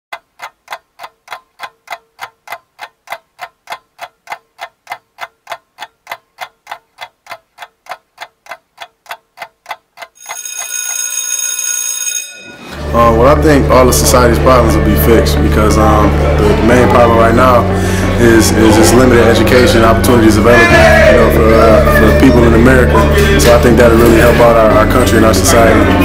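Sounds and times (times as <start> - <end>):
clock ticking: 0.1 - 11.8, 15.7 - 26.0
alarm ringing: 10.2 - 12.8.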